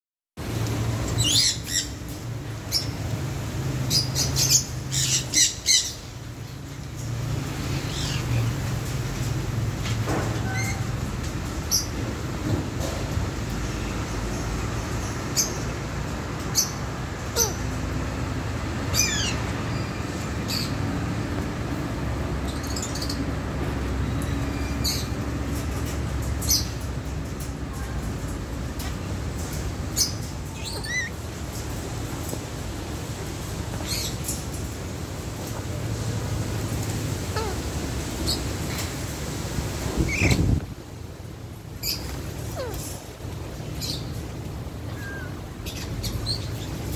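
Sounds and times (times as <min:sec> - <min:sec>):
parakeets chirping: 0:03.9 - 0:08.8, 0:16.5 - 0:17.8, 0:18.8 - 0:20.8, 0:29.9 - 0:31.2, 0:37.3 - 0:38.9, 0:40.0 - 0:40.6, 0:41.8 - 0:44.2, 0:44.9 - 0:46.9
parakeets squawking: 0:07.6 - 0:08.6, 0:16.6 - 0:17.8, 0:18.9 - 0:19.9, 0:30.0 - 0:31.2, 0:37.3 - 0:38.8, 0:41.8 - 0:43.2.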